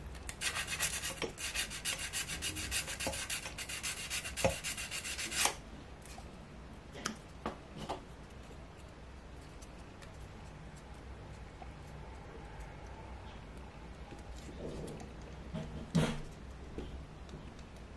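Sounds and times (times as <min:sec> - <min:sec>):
sandpaper rubbing wood: 0:00.4 - 0:05.6.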